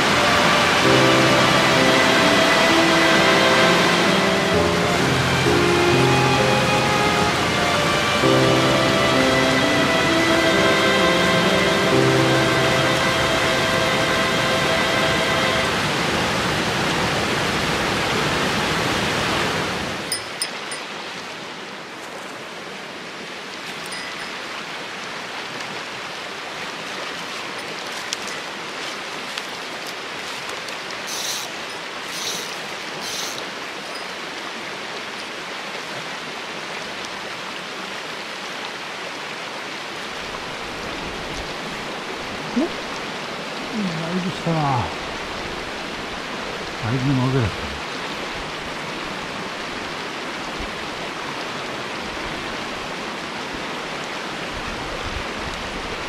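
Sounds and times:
stream running over rocks: 0.0s - 56.0s.

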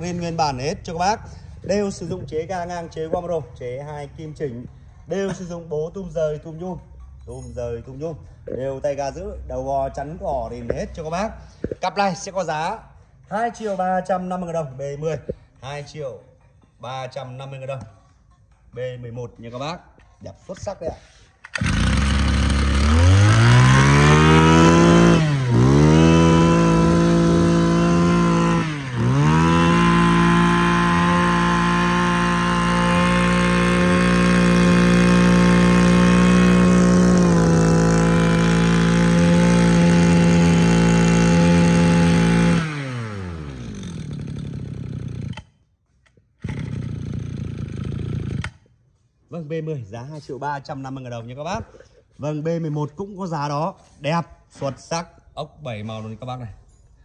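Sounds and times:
brush cutter engine revving: 21.5s - 45.5s, 46.4s - 48.6s.

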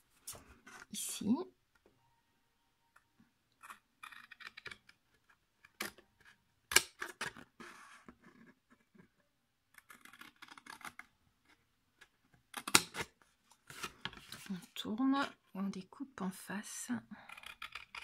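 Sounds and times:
card rustling: 13.1s - 14.8s.

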